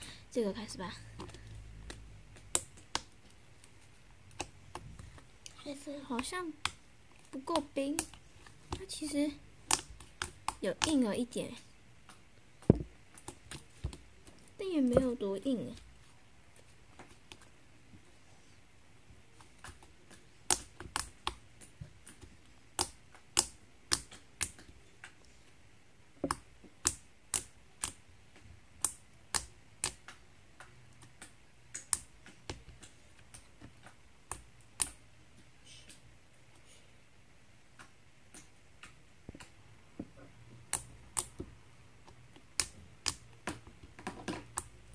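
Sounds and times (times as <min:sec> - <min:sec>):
slime clicking and popping: 0:07.4 - 0:11.1, 0:19.5 - 0:25.2, 0:26.2 - 0:35.0, 0:40.7 - 0:41.4, 0:42.0 - 0:43.7.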